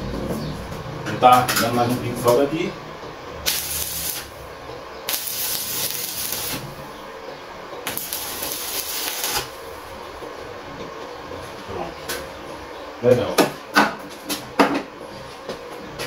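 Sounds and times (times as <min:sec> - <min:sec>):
arc welder hissing crackle: 0:03.4 - 0:04.4, 0:05.0 - 0:06.9, 0:07.8 - 0:09.9.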